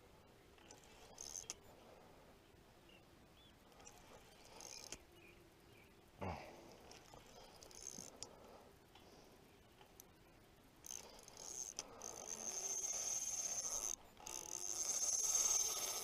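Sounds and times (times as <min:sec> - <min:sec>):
fishing reel drag buzzing: 0:00.6 - 0:01.6, 0:03.8 - 0:05.0, 0:06.8 - 0:08.3, 0:10.8 - 0:16.0.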